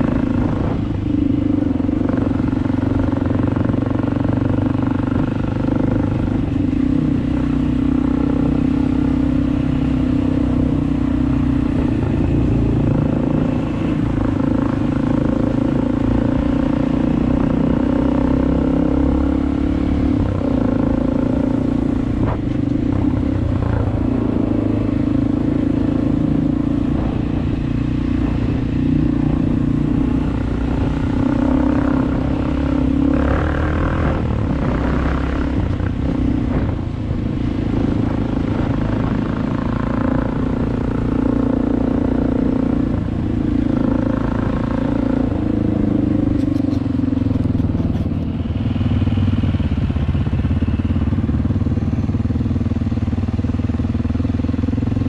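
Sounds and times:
dirt bike engine running: 19.6s - 55.0s.

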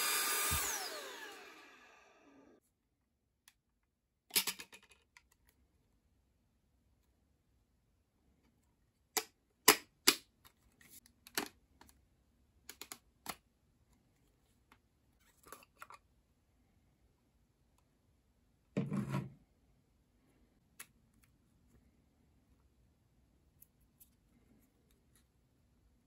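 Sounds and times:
plastic parts clicking and rattling: 4.3s - 5.5s, 11.1s - 12.0s, 12.6s - 13.4s.

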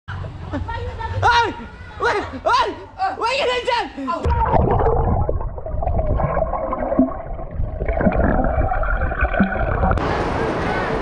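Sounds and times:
water gurgling and sloshing: 4.3s - 10.4s.

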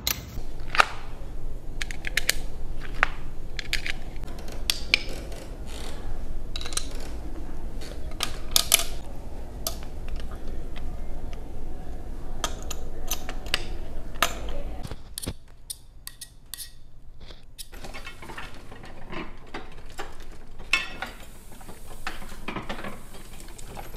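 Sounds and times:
printing press clattering: 17.7s - 23.9s.

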